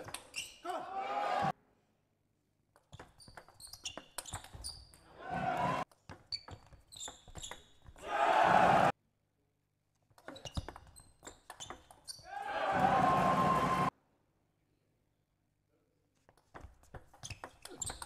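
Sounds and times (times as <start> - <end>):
crowd applause: 5.3 - 5.8, 8.1 - 8.9, 12.4 - 13.9.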